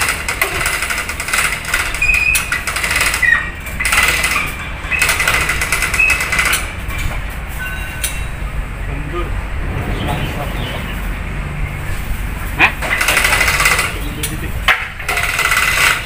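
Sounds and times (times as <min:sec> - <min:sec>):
metallic rattling and clicking: 0:00.0 - 0:07.4
steady low hum: 0:08.3 - 0:12.8.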